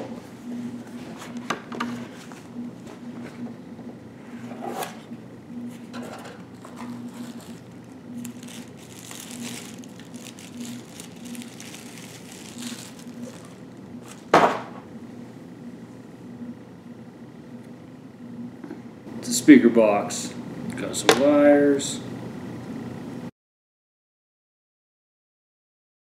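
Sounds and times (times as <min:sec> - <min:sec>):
plastic bag crinkling: 0:06.5 - 0:14.3.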